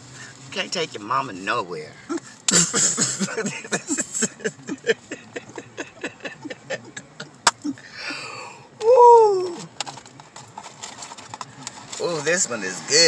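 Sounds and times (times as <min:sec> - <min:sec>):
woman laughing: 0:02.1 - 0:08.4.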